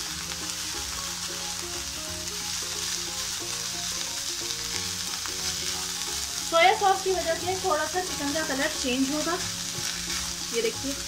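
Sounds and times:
chicken and onions sizzling in pan: 0:00.0 - 0:11.0
spatula scraping a pan: 0:08.5 - 0:10.7.

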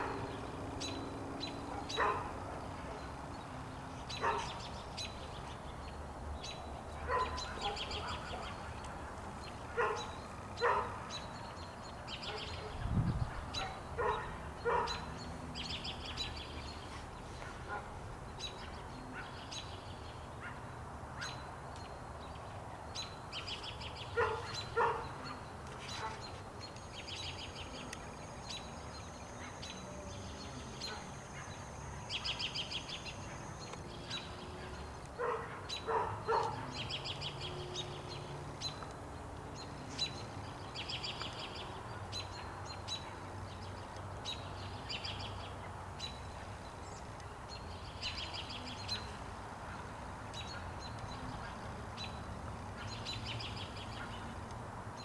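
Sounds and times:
birds chirping trills: 0:00.0 - 0:55.0
dog barking: 0:01.7 - 0:02.4, 0:04.2 - 0:04.6, 0:07.1 - 0:08.6, 0:09.8 - 0:11.0, 0:12.2 - 0:12.8, 0:13.5 - 0:15.1, 0:17.4 - 0:18.0, 0:24.2 - 0:26.2, 0:35.2 - 0:36.8.

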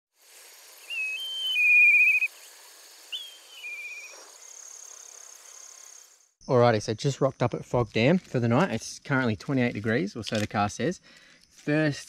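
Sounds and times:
insect chirring: 0:00.2 - 0:12.0
whistled calls: 0:00.8 - 0:04.7.

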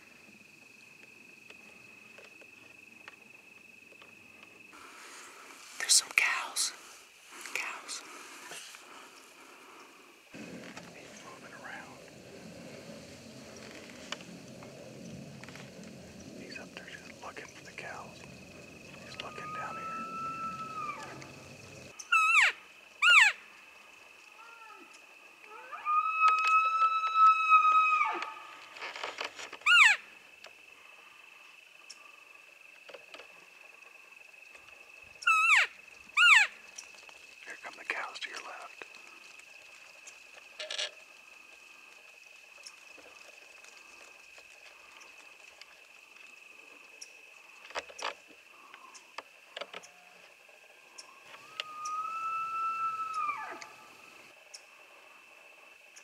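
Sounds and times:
elk mewing: 0:07.8 - 0:21.9
small ticks: 0:24.2 - 0:25.5, 0:31.8 - 0:52.0, 0:53.1 - 0:54.8.

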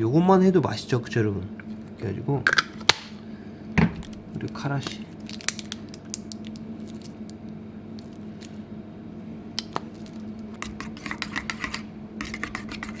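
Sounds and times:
spoon stirring in metal bowl: 0:10.5 - 0:13.0.

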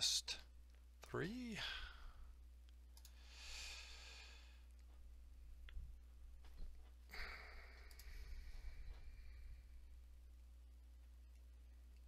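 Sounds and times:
low electrical hum: 0:00.0 - 0:12.0
faint mouse clicks: 0:02.6 - 0:03.2, 0:04.6 - 0:09.3
breath into microphone: 0:03.1 - 0:04.7, 0:07.1 - 0:09.9.

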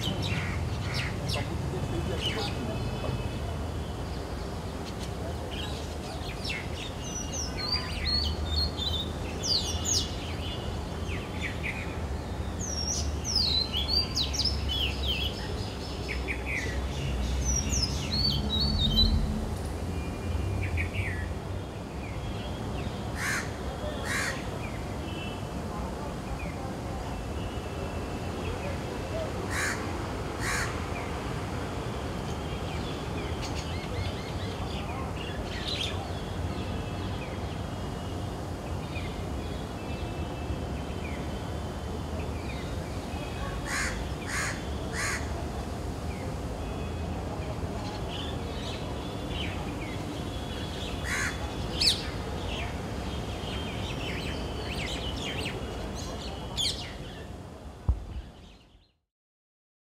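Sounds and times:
crows cawing: 0:23.2 - 0:24.4, 0:29.5 - 0:29.8, 0:30.4 - 0:30.8, 0:43.7 - 0:45.3.

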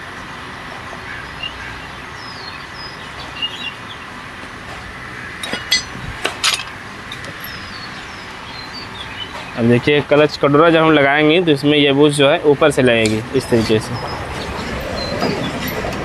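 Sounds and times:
metal clutch plates clinking: 0:05.4 - 0:07.6.

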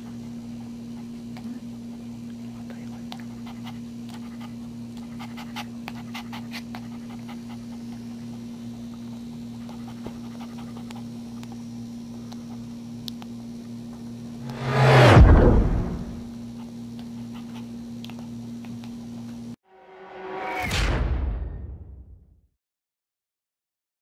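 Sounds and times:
steady low hum: 0:00.0 - 0:19.6
dog panting: 0:00.4 - 0:11.6, 0:16.5 - 0:18.9
puppy suckling clicks: 0:03.0 - 0:08.5, 0:09.6 - 0:11.6, 0:12.3 - 0:13.3, 0:17.0 - 0:19.0.

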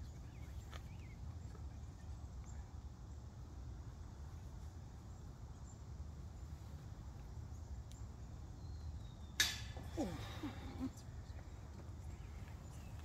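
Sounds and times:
sharp knock with rattle: 0:09.4 - 0:09.8.

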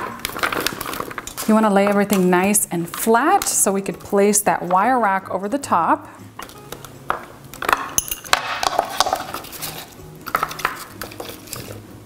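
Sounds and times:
produce clattering on metal pan: 0:06.4 - 0:11.8.

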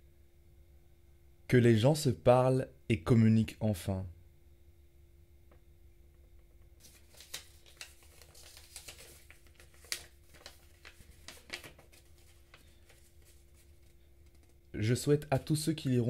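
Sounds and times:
paper crinkling: 0:06.8 - 0:14.7.

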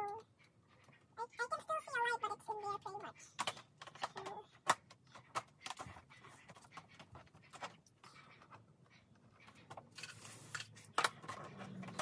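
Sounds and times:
plastic toy pieces clicking: 0:03.4 - 0:06.0.

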